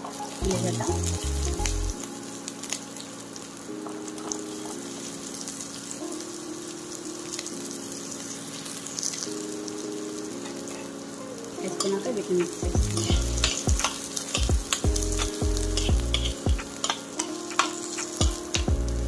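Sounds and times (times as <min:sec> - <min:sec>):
soft background music: 0:00.0 - 0:19.0
vegetables sizzling in hot oil: 0:00.0 - 0:19.0.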